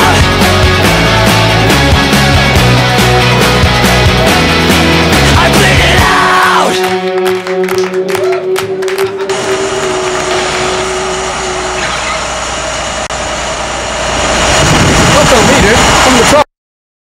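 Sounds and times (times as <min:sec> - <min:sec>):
rock song held note: 0:00.0 - 0:12.2
vehicle engine and traffic rumble: 0:09.3 - 0:16.4.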